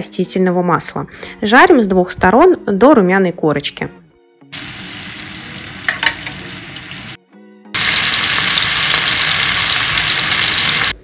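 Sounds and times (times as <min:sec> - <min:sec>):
chicken sizzling in hot oil: 0:04.6 - 0:07.2, 0:07.8 - 0:11.0.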